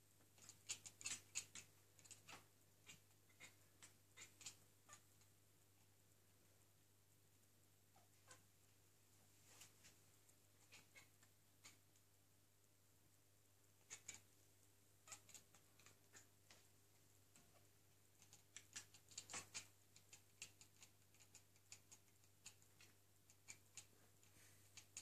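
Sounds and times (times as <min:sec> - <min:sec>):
cats chattering: 0:00.4 - 0:05.2, 0:07.9 - 0:08.5, 0:10.5 - 0:11.9, 0:13.8 - 0:14.3, 0:15.0 - 0:16.6, 0:17.4 - 0:25.0.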